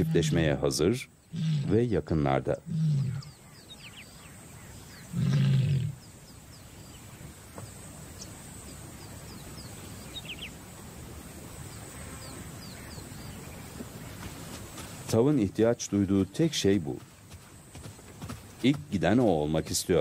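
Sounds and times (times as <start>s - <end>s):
lioness calling: 0.0s - 1.9s, 2.5s - 6.0s.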